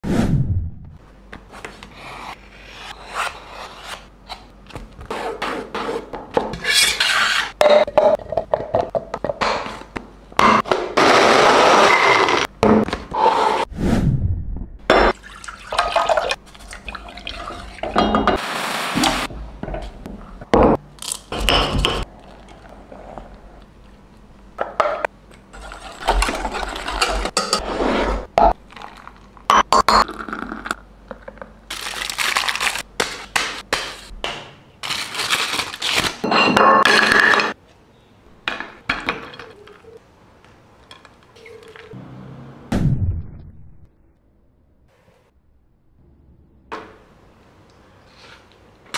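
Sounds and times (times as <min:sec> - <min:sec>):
liquid pouring: 0:15.1 - 0:18.0.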